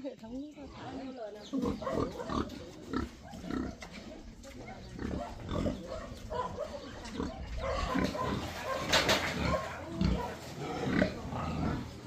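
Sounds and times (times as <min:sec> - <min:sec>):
pigs grunting: 0:00.6 - 0:12.0.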